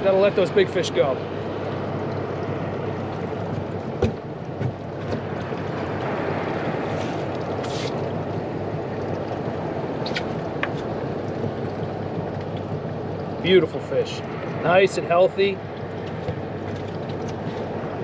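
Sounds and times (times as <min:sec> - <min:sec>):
water around boat: 0:00.0 - 0:18.0
light clicks and knocks: 0:10.1 - 0:12.8.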